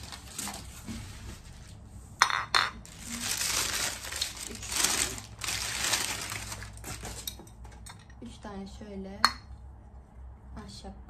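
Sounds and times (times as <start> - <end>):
packing paper crinkling: 0.0 - 1.7, 2.8 - 7.4.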